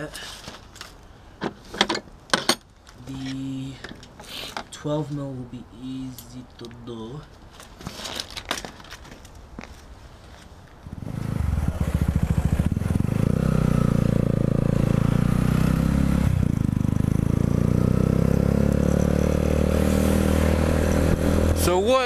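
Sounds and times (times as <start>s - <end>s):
motorcycle engine running: 10.9s - 21.7s.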